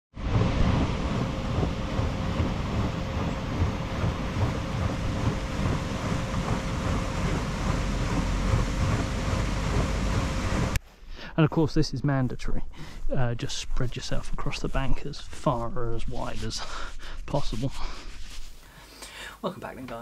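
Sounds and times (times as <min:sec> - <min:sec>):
wind rumble on microphone: 0:00.1 - 0:10.8.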